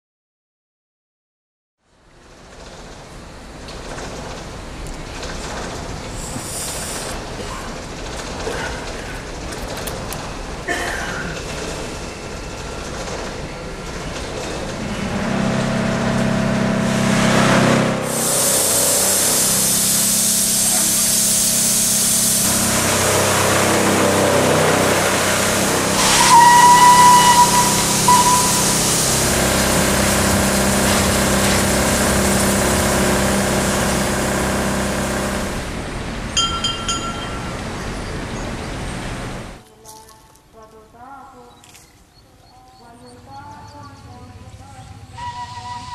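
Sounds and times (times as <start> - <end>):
steam locomotive hissing: 5.4 - 15.4, 17.7 - 39.5
loud rush of escaping steam: 6.0 - 9.4, 18.0 - 38.4
steam whistle blast: 15.1 - 34.8, 45.2 - 45.9.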